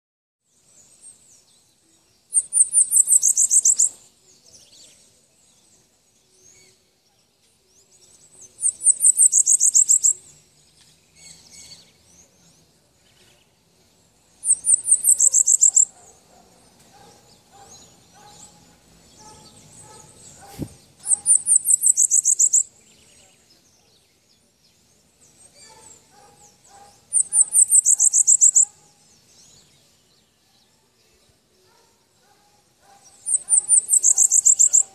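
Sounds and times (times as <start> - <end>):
songbird trilling: 2.3 - 4.1, 8.5 - 10.3, 14.4 - 16.2, 19.2 - 23.0, 25.5 - 28.8, 32.9 - 34.9
soft bird calls: 2.3 - 13.5, 14.4 - 24.2, 25.2 - 29.9, 30.8 - 34.9.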